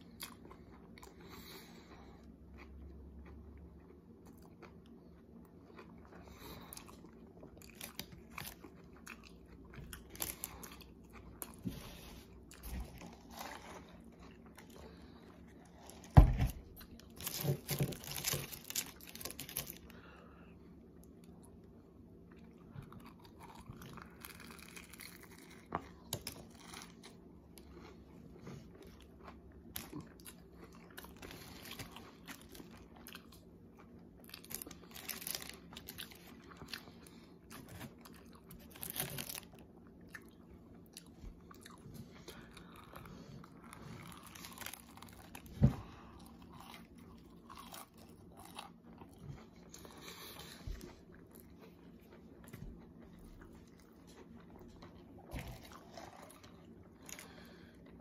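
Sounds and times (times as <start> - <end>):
chewing and crunching food: 0.0 - 58.0
faint steady hum: 0.0 - 58.0.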